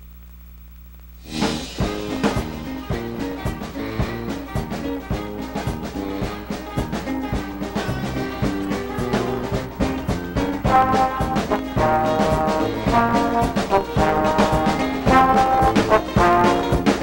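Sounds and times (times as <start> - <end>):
steady drum beat: 1.2 - 17.0
brass playing sustained chords: 1.3 - 17.0.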